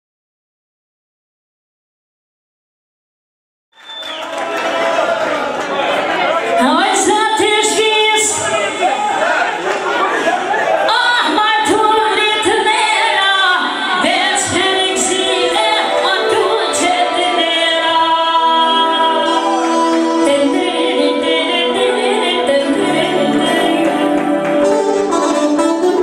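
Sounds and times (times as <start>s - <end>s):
woman singing into microphone: 6.6s - 8.5s, 10.9s - 25.2s.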